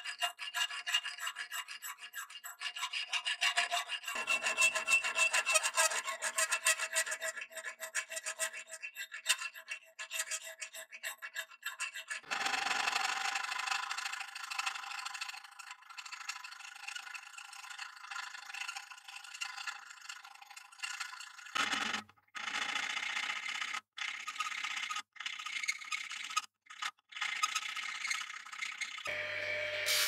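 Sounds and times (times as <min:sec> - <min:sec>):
file rasping on metal blade: 0:00.0 - 0:22.0.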